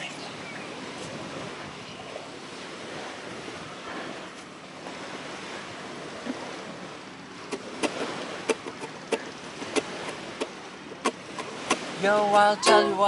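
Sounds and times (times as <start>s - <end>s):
surf: 0.0s - 13.0s
wind: 0.0s - 13.0s
ukulele strumming: 7.8s - 13.0s.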